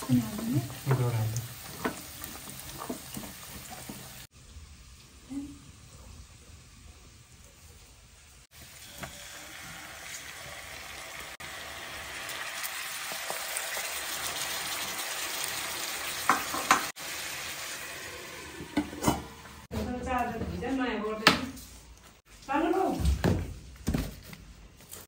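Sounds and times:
tomatoes being stirred: 0.0s - 4.3s
meat sizzling in a wok: 0.0s - 19.7s.

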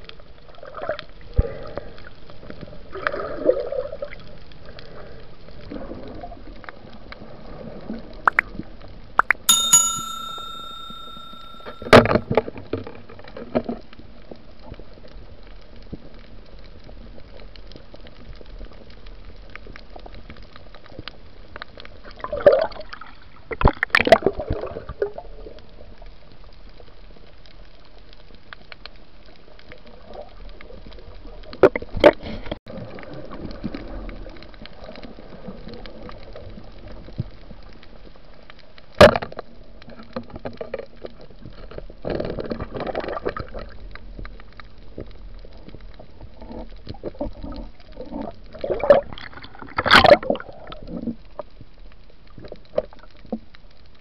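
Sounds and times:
bell-like chime: 9.2s - 12.1s
muffled underwater water rush: 29.0s - 54.0s.

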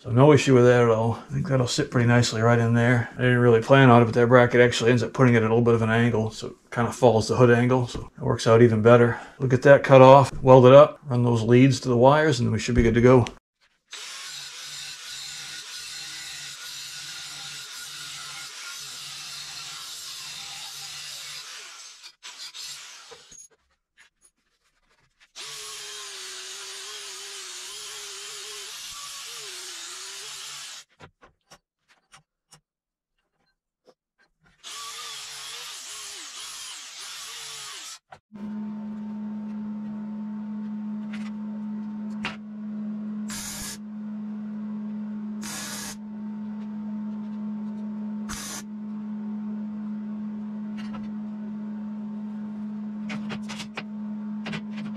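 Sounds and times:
angle grinder cutting steel: 13.9s - 23.4s, 25.4s - 30.9s, 34.6s - 38.1s, 43.3s - 43.8s, 45.4s - 46.0s, 48.3s - 48.7s
grinder running with no load: 25.4s - 30.9s, 34.7s - 54.9s.

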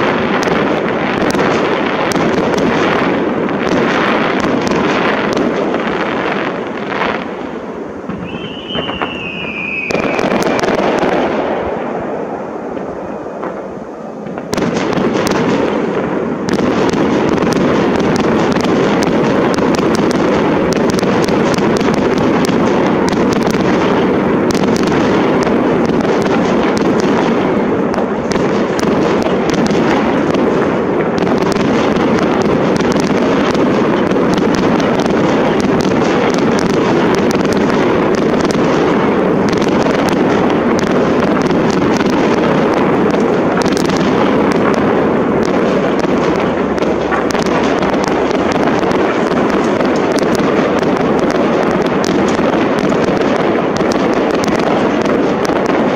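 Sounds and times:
firework barrage and crackle: 0.0s - 55.9s
firework bursts: 0.0s - 55.9s
falling firework whistle: 8.0s - 15.3s.

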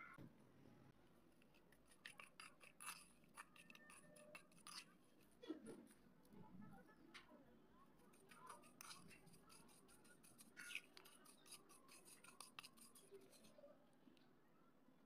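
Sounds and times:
fingers crumbling clay crackling: 1.4s - 5.4s, 8.0s - 13.5s.

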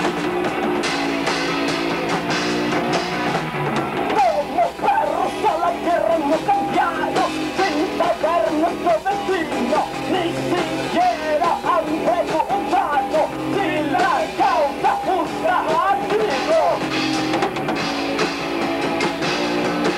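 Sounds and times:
rock band playing live: 0.0s - 19.9s
man singing and shouting: 4.1s - 16.9s.

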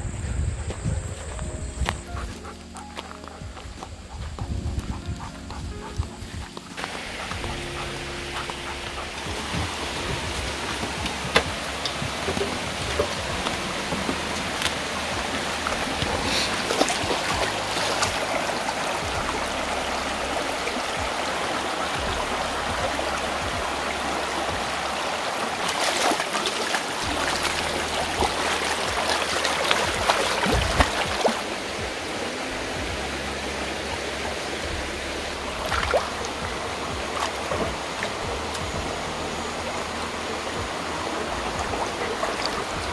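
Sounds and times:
rocky stream running: 0.0s - 42.9s
dog splashing through water: 2.1s - 31.6s.

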